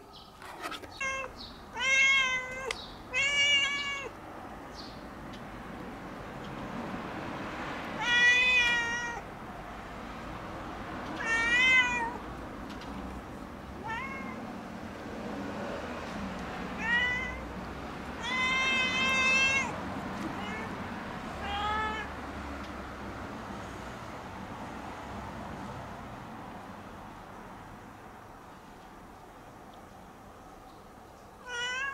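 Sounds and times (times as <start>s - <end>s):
cat meowing: 0.9s - 4.2s, 8.0s - 9.3s, 11.2s - 12.2s, 13.7s - 14.5s, 16.8s - 17.5s, 18.2s - 22.2s, 31.4s - 31.9s.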